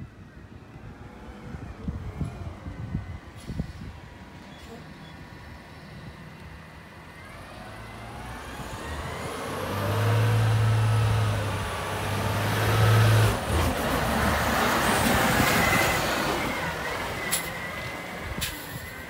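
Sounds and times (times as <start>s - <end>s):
garbage truck engine: 0.9s - 19.0s.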